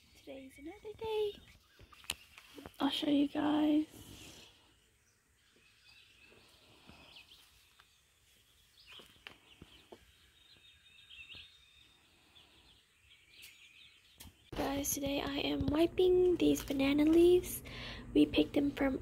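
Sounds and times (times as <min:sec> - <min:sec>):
high bird chirps: 0:08.6 - 0:14.6.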